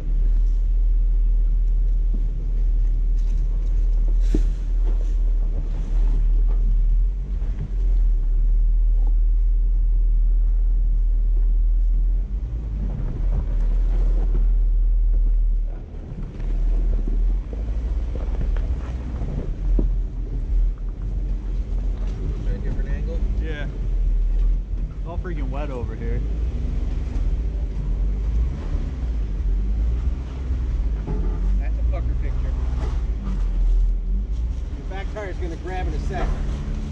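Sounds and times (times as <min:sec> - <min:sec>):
off-road vehicle engine running: 0:00.0 - 0:36.9
wind buffeting microphone: 0:01.9 - 0:36.9.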